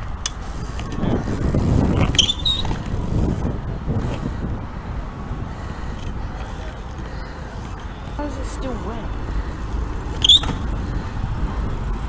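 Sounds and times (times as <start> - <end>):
bike tyres rumbling on asphalt: 0.0 - 12.0
short high squeak: 2.2 - 2.7, 10.2 - 10.6.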